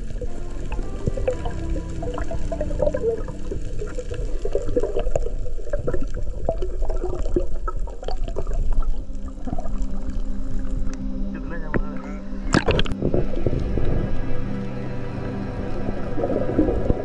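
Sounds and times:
underwater rumble of moving water: 0.0 - 17.0
small underwater clicks and pops: 12.5 - 13.9.

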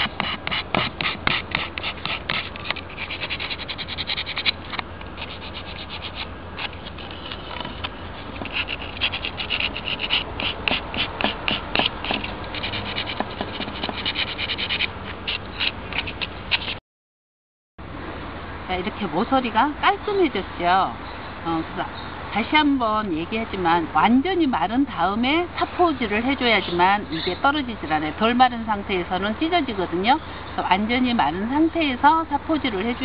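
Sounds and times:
sandpaper rubbing: 0.0 - 16.8.

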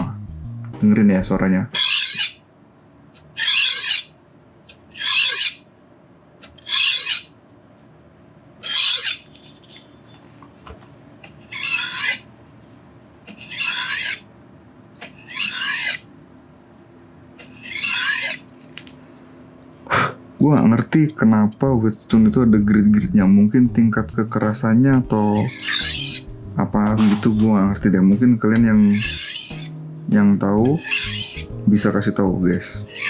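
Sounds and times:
knife scraping on whetstone: 1.8 - 2.4, 3.4 - 4.1, 4.9 - 5.6, 6.6 - 7.3, 8.6 - 9.9, 11.4 - 12.3, 13.3 - 14.3, 15.1 - 16.1, 17.4 - 18.5, 25.2 - 26.3, 28.8 - 29.8, 30.6 - 31.6.

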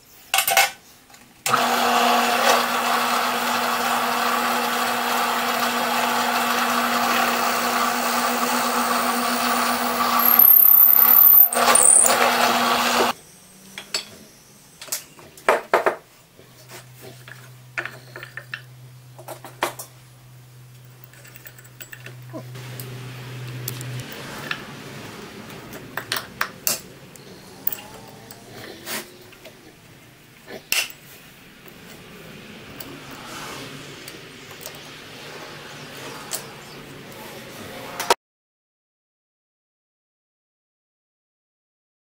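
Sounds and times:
electric power tool sanding: 1.5 - 13.2.

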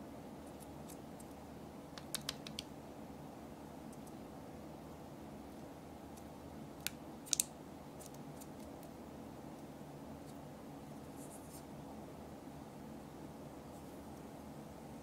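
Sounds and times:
steady low hum: 0.0 - 15.0
fingers clicking on plastic: 2.0 - 2.7
soft scratching: 11.0 - 11.7.

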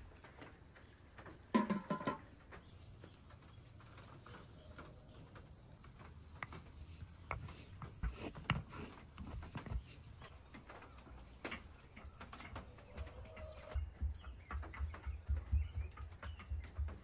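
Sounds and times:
pestle grinding in stone mortar: 6.3 - 10.6.

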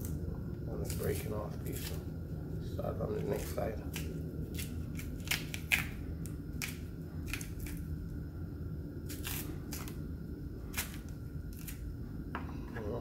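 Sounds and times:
low steady hum: 0.0 - 13.0
banana peel cracking and tearing: 3.3 - 7.9, 9.1 - 10.0, 10.7 - 11.8.

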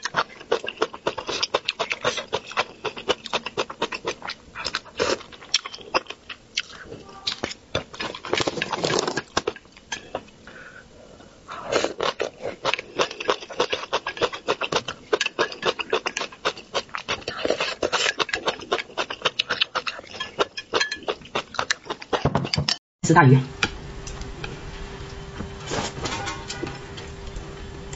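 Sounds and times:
chewing: 0.0 - 10.4, 11.5 - 22.2.

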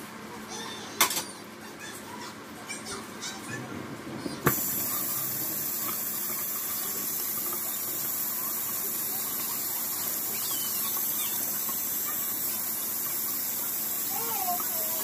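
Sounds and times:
faucet running into a steel sink: 4.5 - 15.0.

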